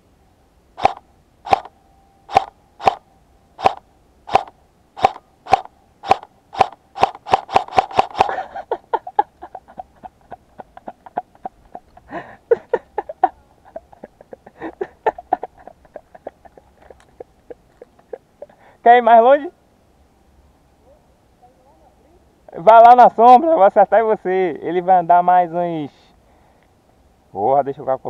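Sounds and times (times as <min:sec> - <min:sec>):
airsoft gun shots popping: 0:00.8 - 0:01.7, 0:02.3 - 0:03.0, 0:03.6 - 0:08.4
soft clicks and rustles: 0:15.6 - 0:18.2.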